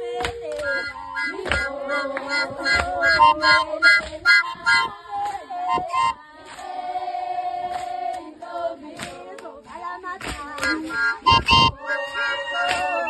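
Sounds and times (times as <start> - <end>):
group of voices singing: 0.0 - 13.0
sharp beats: 0.5 - 4.9, 10.5 - 13.0.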